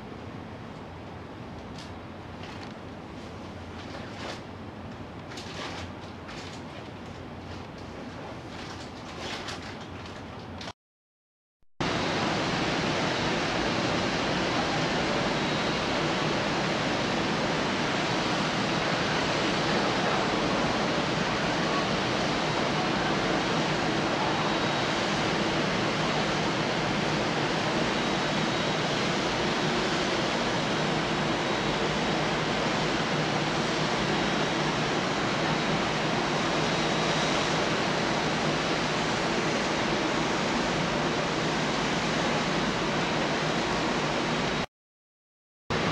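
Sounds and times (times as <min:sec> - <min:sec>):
steady rushing noise: 0:11.8 - 0:44.7.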